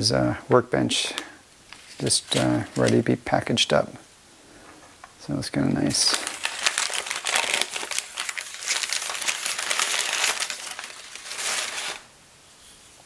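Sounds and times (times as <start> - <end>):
paper crinkling and crackling: 1.7 - 3.1, 5.8 - 12.1.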